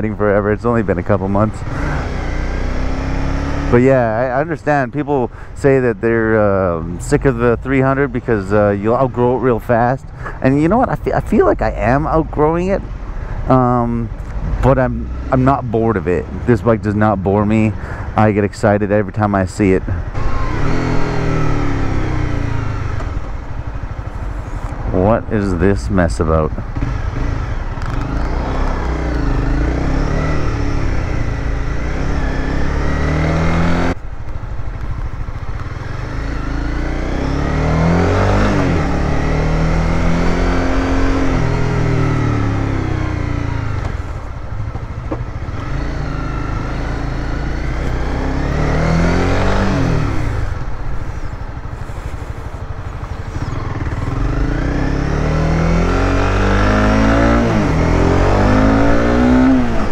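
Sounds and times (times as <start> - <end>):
motorcycle engine accelerating: 0.0 - 5.2, 19.9 - 59.9.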